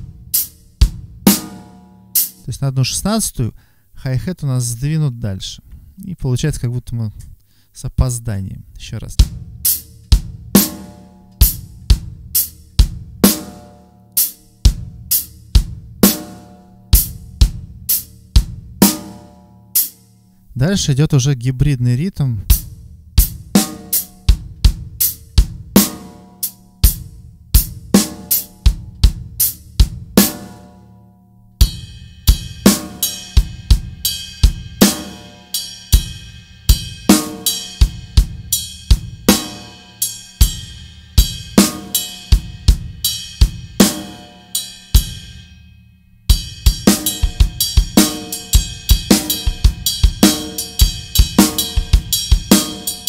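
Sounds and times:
drum kit groove: 0.0s - 3.0s, 8.9s - 21.0s, 21.6s - 31.0s, 31.6s - 45.6s, 46.2s - 53.0s
ringing cymbal wash: 31.7s - 53.0s.

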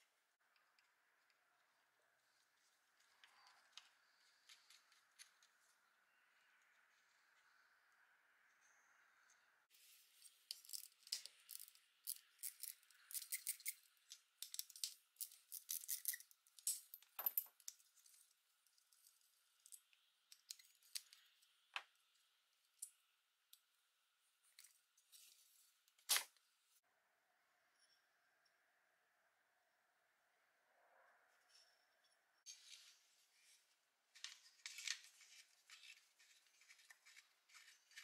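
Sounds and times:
small metal parts clicking and rattling: 10.3s - 21.4s.

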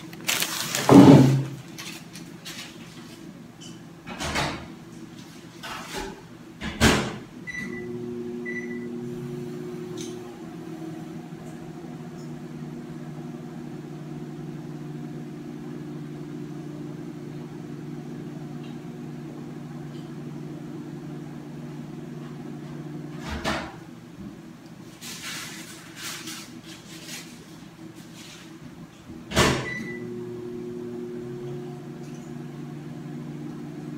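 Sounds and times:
handling noises: 0.0s - 3.4s
microwave oven humming: 0.0s - 33.9s.

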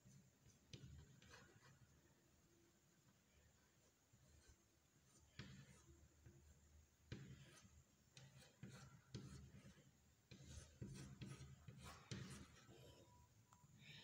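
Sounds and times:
chalk scratching on blackboard: 0.0s - 2.1s, 4.2s - 6.5s, 7.1s - 12.7s
chalk tapping on board: 0.6s - 1.7s, 5.1s - 5.9s, 7.1s - 12.6s.

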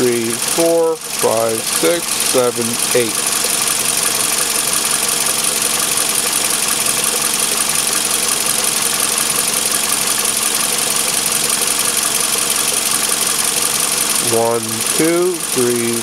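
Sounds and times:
machine humming with high hiss: 0.0s - 16.0s.

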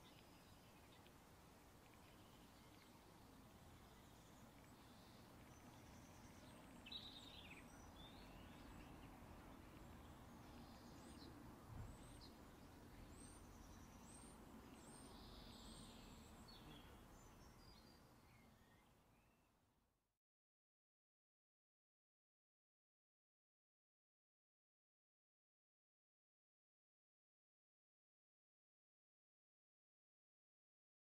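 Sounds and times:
low steady hiss: 0.0s - 20.2s.

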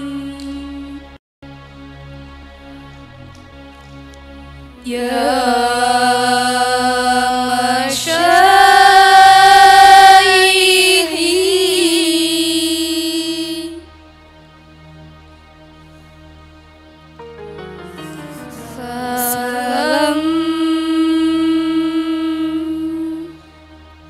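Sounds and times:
soft backing music: 0.0s - 24.0s
girls chanting into microphones: 4.8s - 13.8s, 18.6s - 22.9s.

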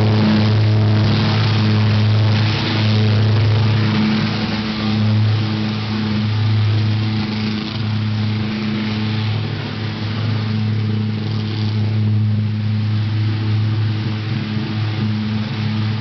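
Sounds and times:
pulse jet engine buzzing drone: 0.0s - 16.0s.

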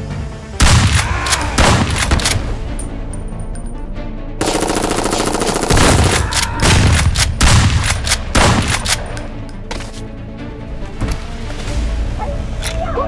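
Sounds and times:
background music: 0.0s - 13.0s
gunfire: 0.6s - 2.5s, 4.4s - 9.4s.

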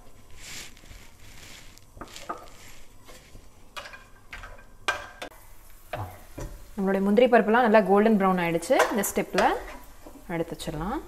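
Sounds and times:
nuts frying: 0.0s - 11.0s
spatula knocking and scraping pan: 2.0s - 6.8s, 7.7s - 10.6s.

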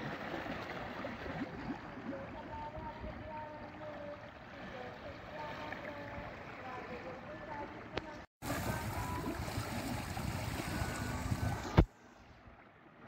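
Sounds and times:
boat engine running: 2.0s - 11.9s.

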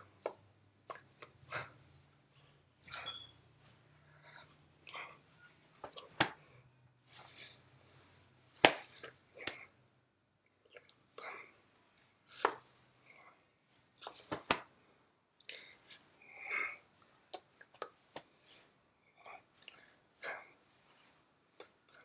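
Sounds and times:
hands slapping and clapping: 0.2s - 1.3s, 5.8s - 6.5s, 8.6s - 9.7s, 12.4s - 12.7s, 14.0s - 14.7s.

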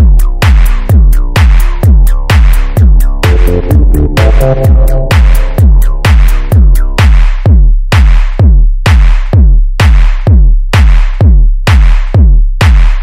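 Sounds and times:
techno drum machine kick: 0.0s - 13.0s
synth chord: 3.2s - 6.0s.

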